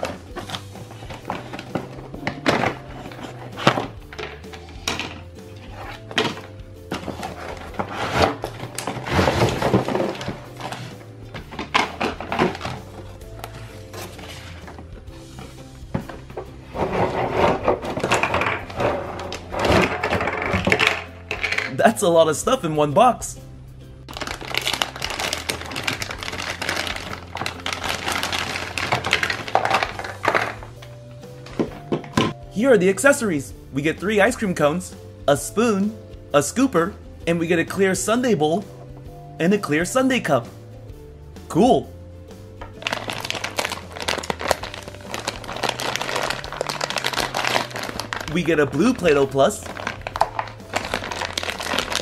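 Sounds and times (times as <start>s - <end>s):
plastic bag crinkling: 7.0s - 13.1s, 24.1s - 30.6s, 42.8s - 52.0s
plastic toy parts knocking: 17.7s - 21.7s.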